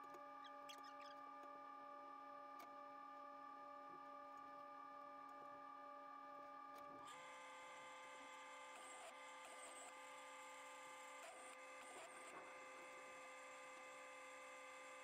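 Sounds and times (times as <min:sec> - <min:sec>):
faint multi-tone whine: 0:00.0 - 0:15.0.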